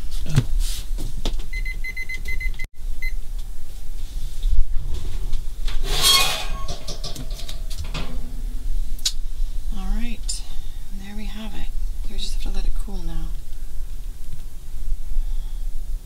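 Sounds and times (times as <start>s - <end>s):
kitchen timer beeping: 1.6s - 3.2s
metal oven rack scraping: 4.8s - 8.8s.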